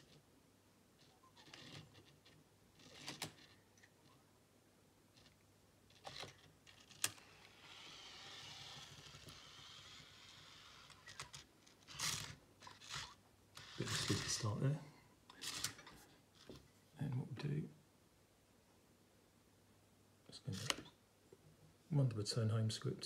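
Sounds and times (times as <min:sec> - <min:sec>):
small motors whirring faintly: 0:05.1 - 0:14.7.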